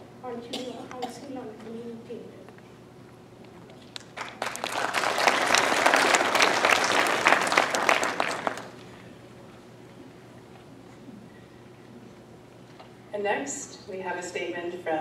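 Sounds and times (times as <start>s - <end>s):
audience applauding: 4.0s - 8.8s.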